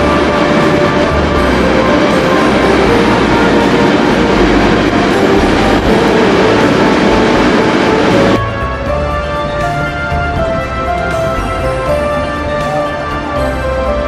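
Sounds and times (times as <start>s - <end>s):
background music: 0.0s - 14.0s
diesel locomotive engine: 0.0s - 14.0s
freight train wheels rolling: 0.0s - 14.0s.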